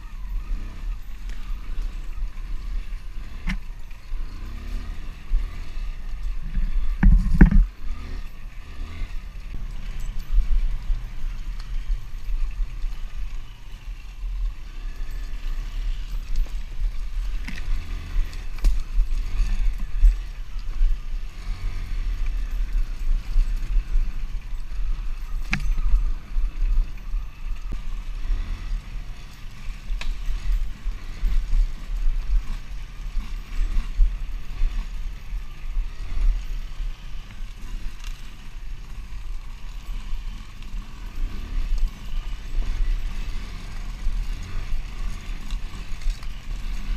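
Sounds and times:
dirt bike engine revving: 0.0s - 46.9s
sharp knocks from bumpy ground: 7.0s - 7.7s.

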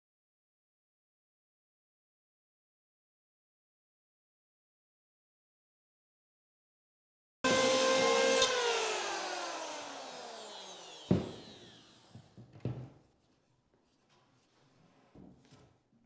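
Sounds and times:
power tool whine winding down: 7.5s - 12.4s.

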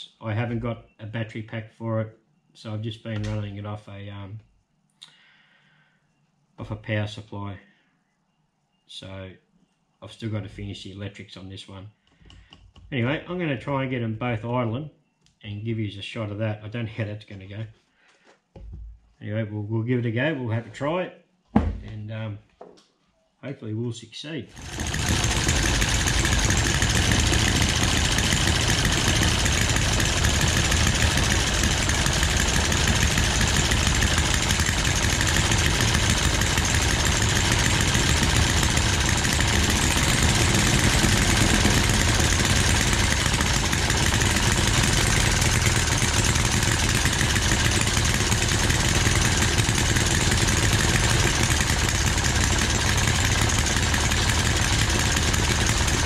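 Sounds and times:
model engines running: 24.5s - 56.0s.

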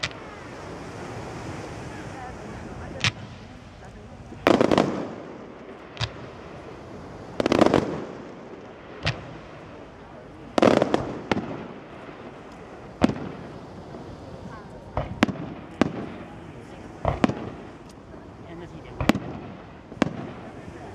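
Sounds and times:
fireworks crackling bursts: 0.0s - 20.9s
firework sharp bang: 4.3s - 8.2s, 8.9s - 9.8s, 10.4s - 17.8s, 19.0s - 20.9s.

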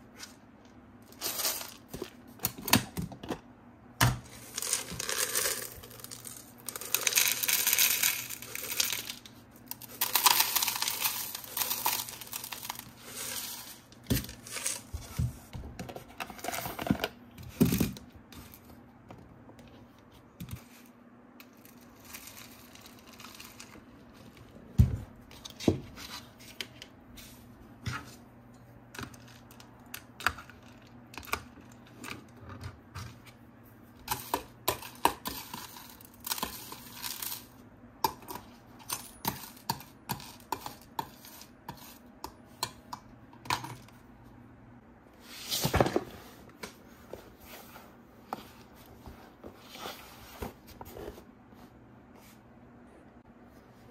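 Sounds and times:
plastic pieces clicking: 4.6s - 12.9s.

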